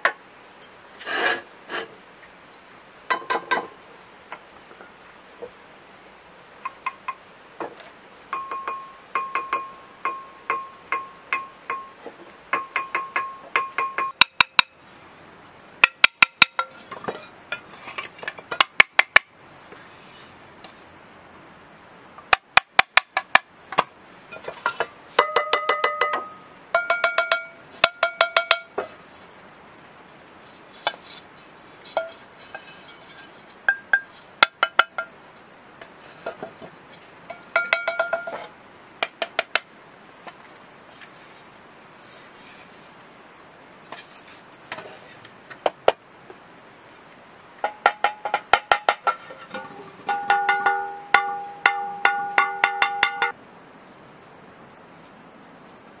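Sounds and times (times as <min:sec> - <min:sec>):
ceramic bowls ringing when tapped: 0:08.3 - 0:14.7, 0:25.2 - 0:28.8, 0:37.3 - 0:38.4, 0:47.6 - 0:53.4.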